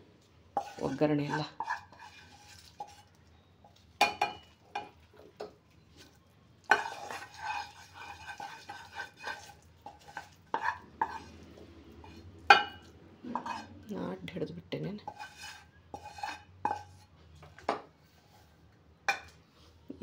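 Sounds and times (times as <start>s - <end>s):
wooden spatula scraping pan: 0.5s - 3.2s, 6.0s - 13.7s, 15.0s - 18.6s.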